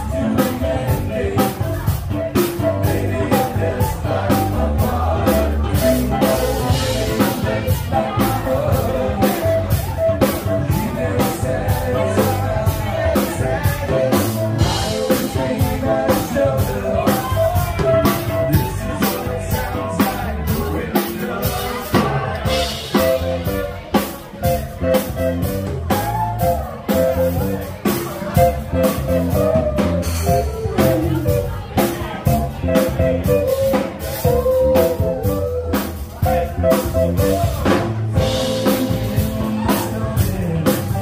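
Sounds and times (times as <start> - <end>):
drum beat: 0.0 - 41.0
guitar: 0.0 - 41.0
person singing: 0.0 - 41.0.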